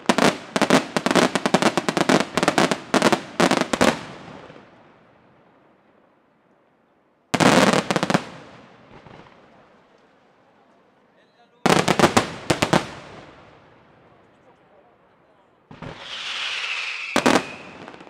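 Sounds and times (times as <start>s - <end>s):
fireworks bursting with sharp bangs: 0.0s - 4.8s, 7.3s - 10.2s, 11.6s - 14.2s, 15.7s - 18.0s.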